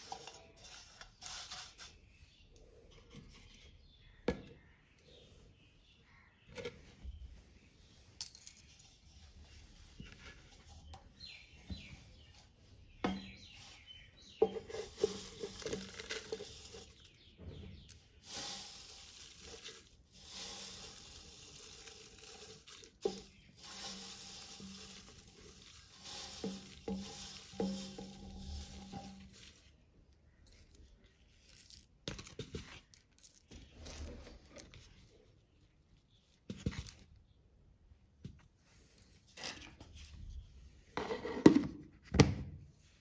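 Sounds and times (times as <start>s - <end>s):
dried leaves rustling and crackling: 13.2s - 31.9s.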